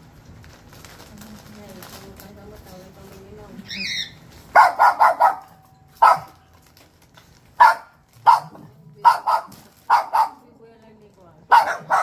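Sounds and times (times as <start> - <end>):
dog barking in sharp yaps: 4.5 - 6.4, 7.6 - 10.4, 11.5 - 12.0.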